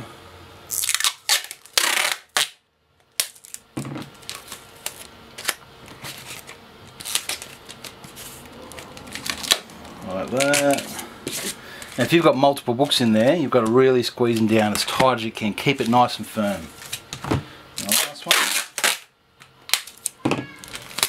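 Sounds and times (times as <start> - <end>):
cardboard scraping: 5.9 - 12.1.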